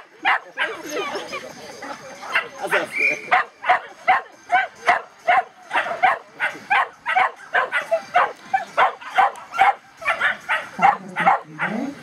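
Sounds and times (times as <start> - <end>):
dog barking rapidly: 3.3 - 11.8.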